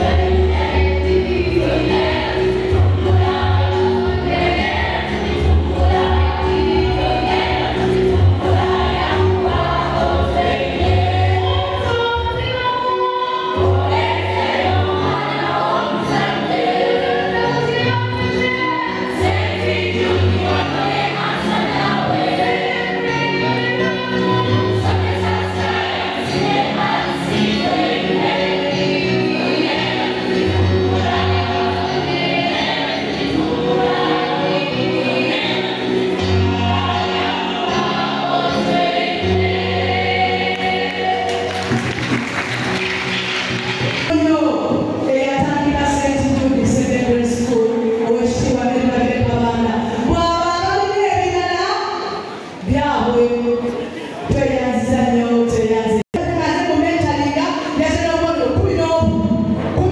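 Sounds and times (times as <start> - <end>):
girls' choir singing: 0.0 - 44.1
hand-clapping: 40.5 - 44.1.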